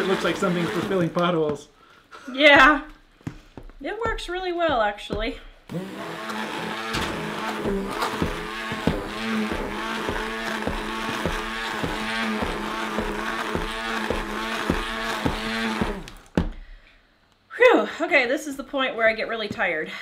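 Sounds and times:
blender knocking: 0.0s - 1.3s, 4.0s - 16.6s
stick blender motor humming: 0.0s - 1.4s, 5.1s - 16.6s.

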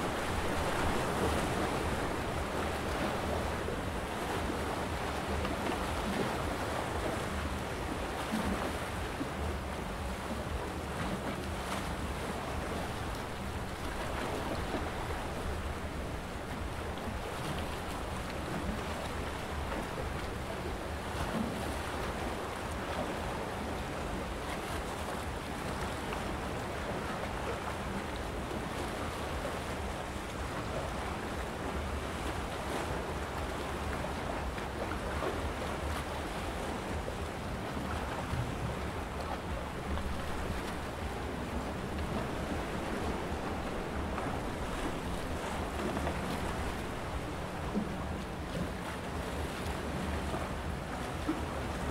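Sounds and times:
sea waves washing against rocks: 0.0s - 51.9s
wind rumble on microphone: 0.0s - 51.9s.

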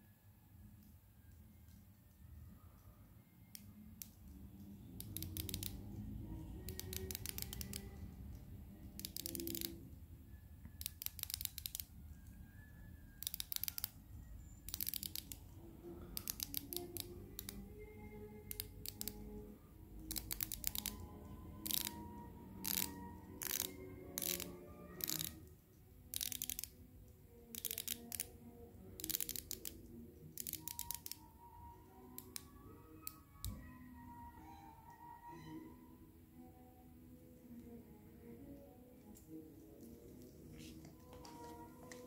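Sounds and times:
soft background music: 0.0s - 42.0s
watch bezel ratcheting clicks: 5.0s - 6.0s, 6.6s - 8.0s, 8.9s - 9.8s, 10.8s - 12.0s, 13.2s - 14.0s, 14.7s - 15.5s, 16.2s - 17.6s, 18.5s - 19.2s, 20.0s - 25.4s, 26.1s - 26.8s, 27.5s - 28.3s, 28.9s - 29.8s, 30.4s - 31.3s.

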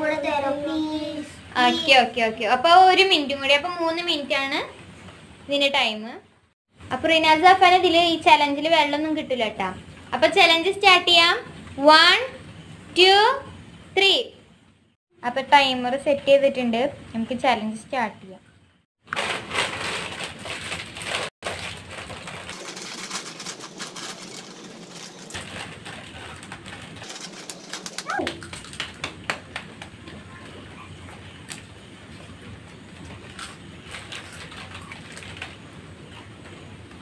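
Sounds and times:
chip packets crinkling: 19.1s - 29.0s.

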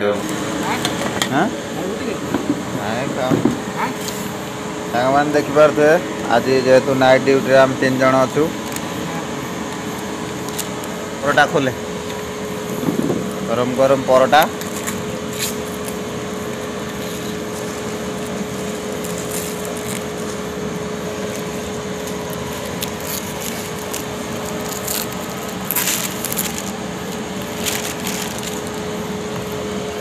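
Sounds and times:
steady mechanical hum: 0.0s - 30.0s
packets rustling and clicking: 8.6s - 9.0s, 9.6s - 11.0s, 14.4s - 29.8s.

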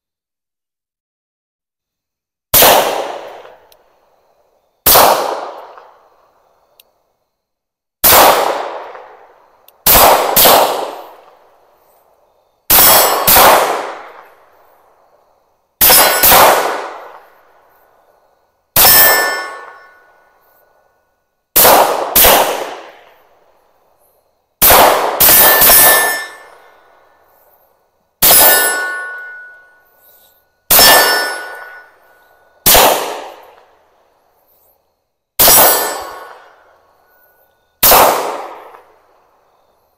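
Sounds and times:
pistol shots: 2.5s - 3.7s, 4.8s - 6.0s, 8.0s - 9.2s, 9.8s - 11.4s, 12.7s - 14.4s, 15.8s - 17.3s, 18.8s - 20.0s, 21.6s - 23.2s, 24.6s - 26.7s, 28.2s - 29.7s, 30.7s - 32.0s, 32.6s - 33.7s, 35.4s - 36.6s, 37.8s - 39.0s
steel plate target ringing: 15.8s - 16.4s, 18.8s - 20.2s, 25.2s - 26.6s, 28.2s - 30.0s, 30.7s - 32.3s, 35.4s - 36.4s.

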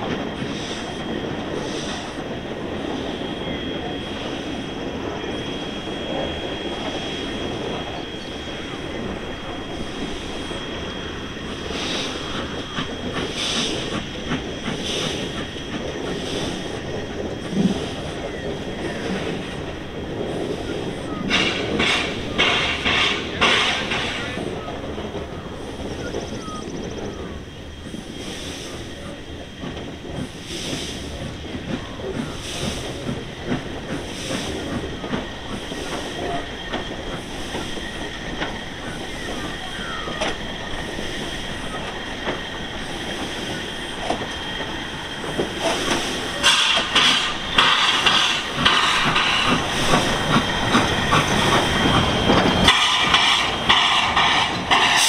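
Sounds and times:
steam hissing: 0.0s - 55.0s
steam locomotive chuffing: 0.0s - 55.0s.

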